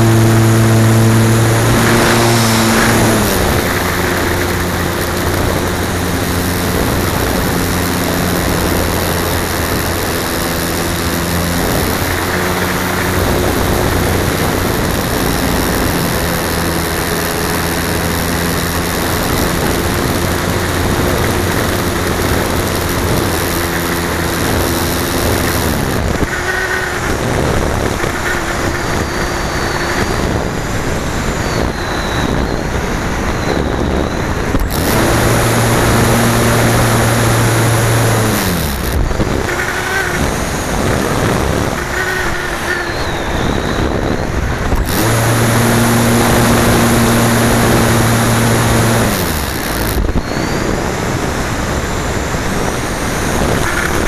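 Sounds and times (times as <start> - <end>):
airflow rushing: 0.0 - 26.3.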